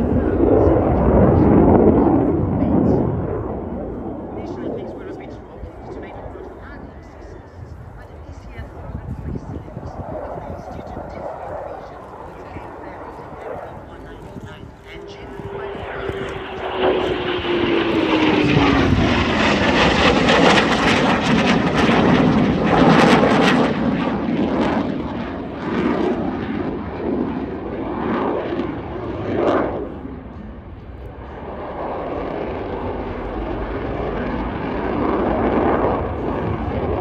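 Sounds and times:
crackling jet noise: 0:00.0 - 0:37.0
fighter jet passing: 0:00.0 - 0:37.0.

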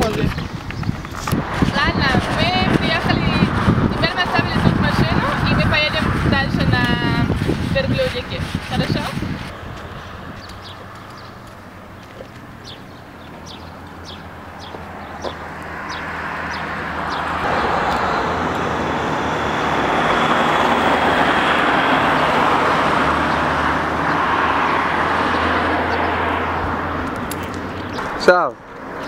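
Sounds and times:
birds chirping: 0:00.0 - 0:29.0
road vehicle passing: 0:00.0 - 0:29.0.

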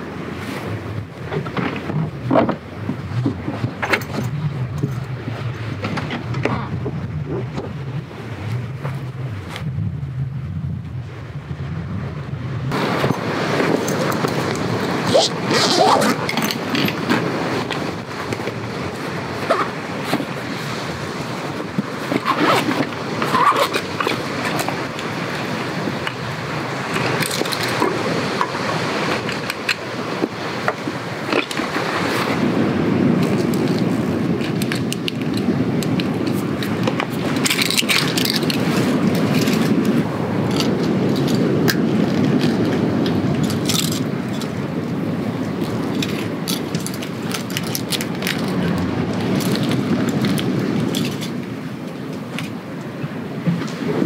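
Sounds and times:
surf: 0:00.0 - 0:54.0
wind: 0:00.0 - 0:54.0
gear clicks rattles and scrapes: 0:01.4 - 0:07.7, 0:13.8 - 0:18.5, 0:27.0 - 0:27.9, 0:33.2 - 0:44.6, 0:45.6 - 0:51.4.

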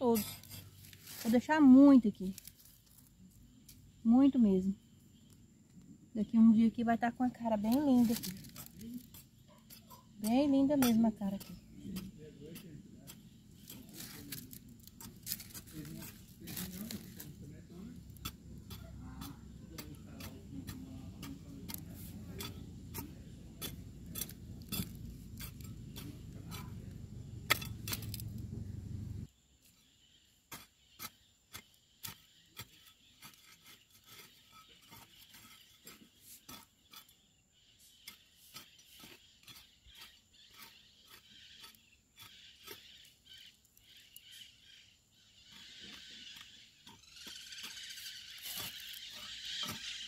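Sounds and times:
low rumble: 0:22.6 - 0:29.3.

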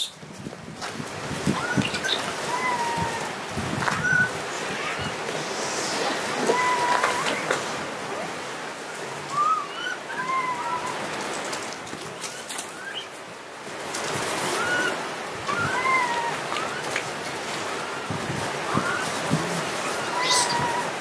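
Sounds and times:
steady background hiss: 0:00.9 - 0:21.0
monkeys cooing: 0:01.5 - 0:11.2, 0:14.5 - 0:21.0.

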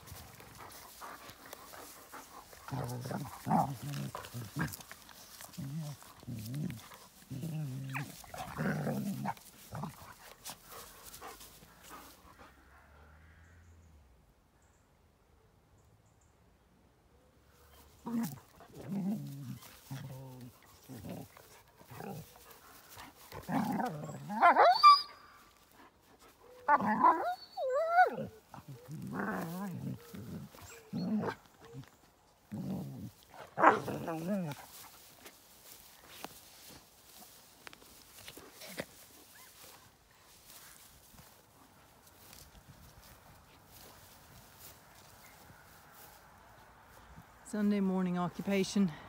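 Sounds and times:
dogs growling: 0:00.0 - 0:13.1, 0:17.9 - 0:24.8, 0:26.2 - 0:39.8
dog yelping: 0:24.4 - 0:25.3, 0:26.5 - 0:28.9.

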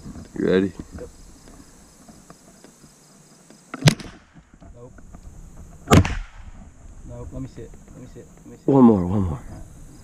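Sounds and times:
high insect buzz: 0:00.0 - 0:10.0
rifle shot: 0:03.8 - 0:04.4, 0:05.8 - 0:06.6.

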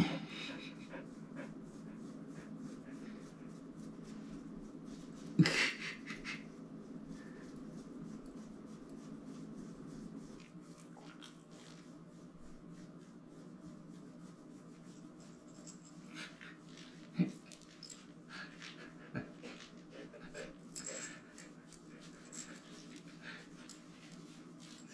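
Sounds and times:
hand scratching dog fur: 0:00.3 - 0:24.9.

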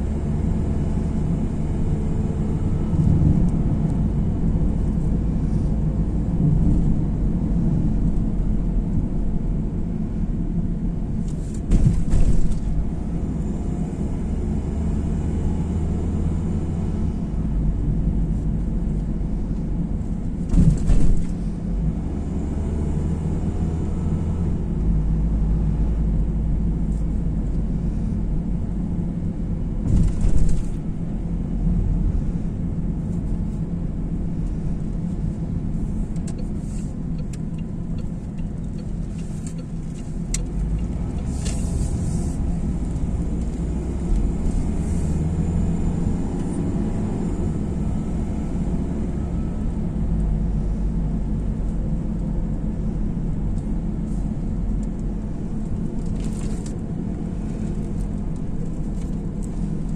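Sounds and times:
car cabin road and engine rumble: 0:00.0 - 0:59.9.

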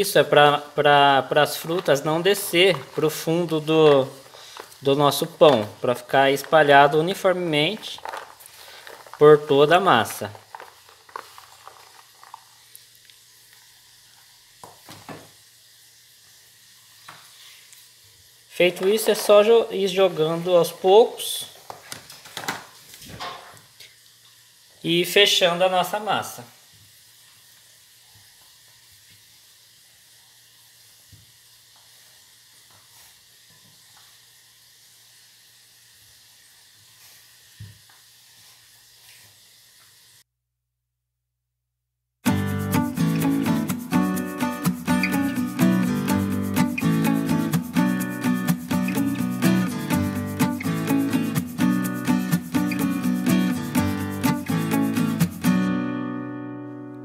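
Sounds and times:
faint steady hiss: 0:00.0 - 0:40.3, 0:42.2 - 0:57.0
hands stirring dried fruit: 0:00.4 - 0:13.0, 0:18.6 - 0:20.4.

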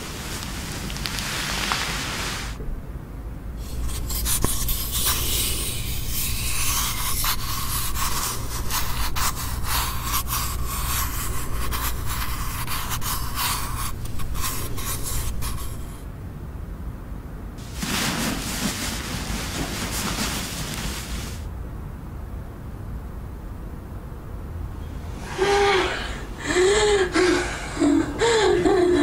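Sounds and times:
crackling hiss with clicks: 0:00.0 - 0:02.6
low steady hum: 0:00.0 - 0:29.0.

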